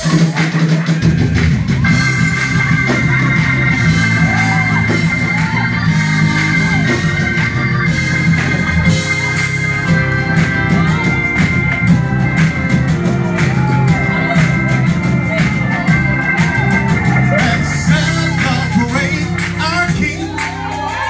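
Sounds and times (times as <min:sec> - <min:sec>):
band held chords: 0:00.0 - 0:21.0
strong steady bass: 0:01.0 - 0:21.0.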